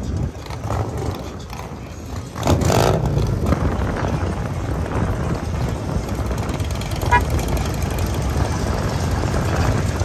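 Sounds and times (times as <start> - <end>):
motorcycle engines running: 0.0 - 10.0
engine revving: 2.3 - 3.7.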